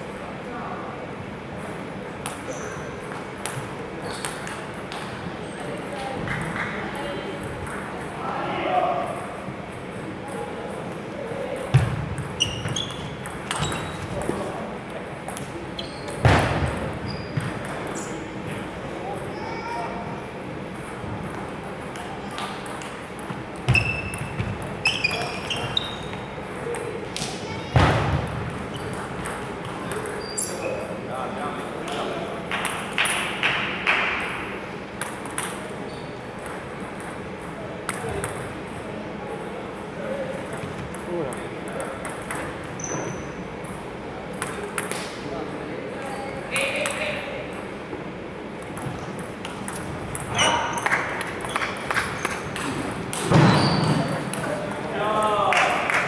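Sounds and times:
shoes squeaking on floor: 0:02.4 - 0:03.0, 0:04.0 - 0:04.5, 0:12.3 - 0:14.4, 0:15.6 - 0:16.2, 0:17.0 - 0:18.3, 0:23.7 - 0:26.4, 0:28.7 - 0:29.1, 0:30.0 - 0:31.0, 0:35.8 - 0:36.2, 0:42.8 - 0:43.4, 0:50.3 - 0:52.5, 0:53.2 - 0:54.2
table tennis ball pinging: 0:11.6 - 0:14.0, 0:28.8 - 0:30.3, 0:41.3 - 0:42.7.

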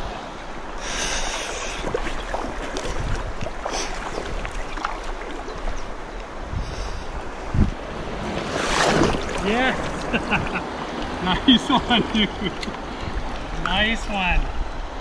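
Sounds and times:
river current rushing: 0:00.0 - 0:15.0
wind rumble on microphone: 0:01.8 - 0:11.3.

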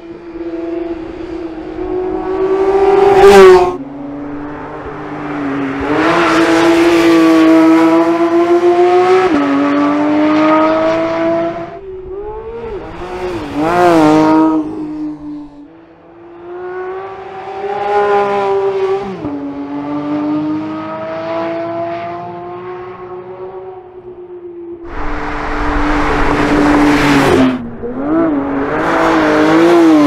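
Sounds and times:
car engine revving high: 0:24.8 - 0:30.0.

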